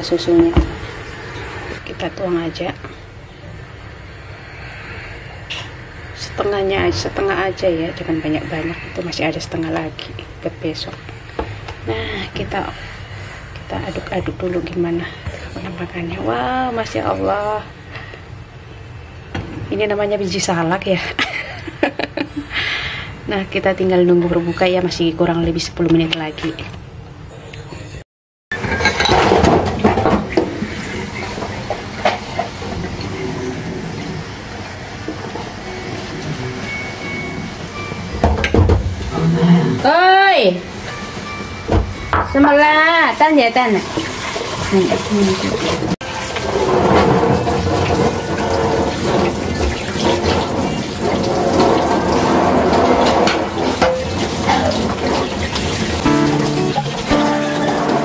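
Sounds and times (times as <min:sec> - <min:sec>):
crockery clattering: 0:28.6 - 0:30.5, 0:46.4 - 0:58.0
items knocking against sink: 0:38.2 - 0:38.9
dishes being scrubbed: 0:43.6 - 0:58.0
tap water running into sink: 0:43.6 - 0:58.0.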